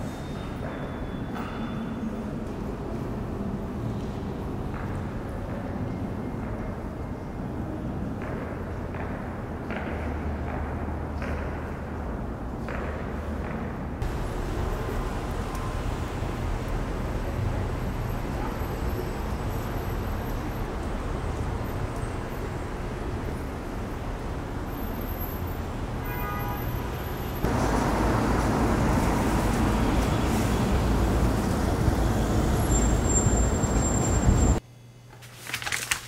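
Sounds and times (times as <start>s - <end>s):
road traffic hum: 7.5s - 34.6s.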